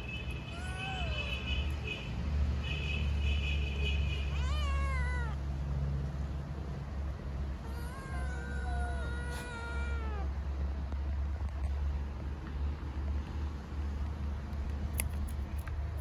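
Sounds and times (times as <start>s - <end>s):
kittens meowing: 4.3s - 5.4s, 7.6s - 10.3s.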